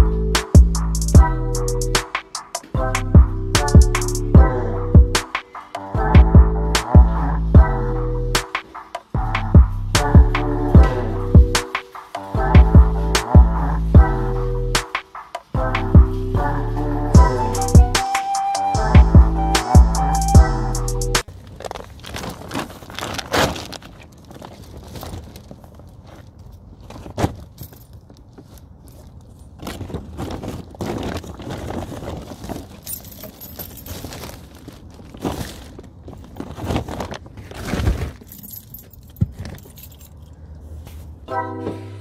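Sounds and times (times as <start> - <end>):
plastic bags rustling: 21.2 - 41.2
keys jangling: 27.5 - 28.1, 32.8 - 34.3, 38.2 - 40.6
handling knocks and clicks: 36.1 - 40.4.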